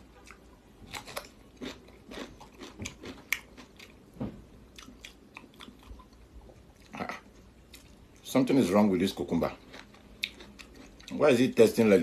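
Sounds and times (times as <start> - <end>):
person chewing cucumber crunches: 0.0 - 8.3, 9.1 - 11.6.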